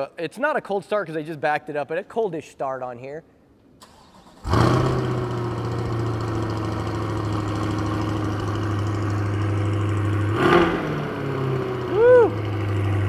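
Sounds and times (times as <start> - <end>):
car engine revving then idling: 4.0 - 13.0.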